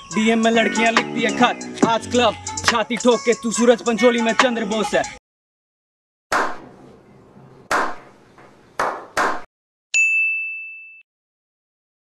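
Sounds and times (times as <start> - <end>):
high-pitched ding: 10.0 - 11.0.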